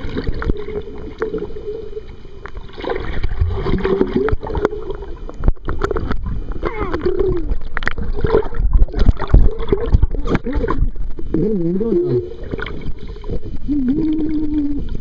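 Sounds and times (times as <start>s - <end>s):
underwater water sloshing: 0.0s - 15.0s
muffled voice underwater: 6.3s - 7.7s, 9.8s - 12.5s, 13.6s - 15.0s.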